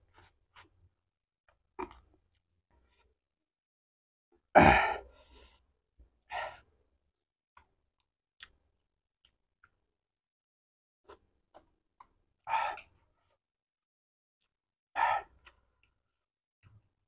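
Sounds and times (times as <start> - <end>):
man sighing exhale: 4.6 - 5.2.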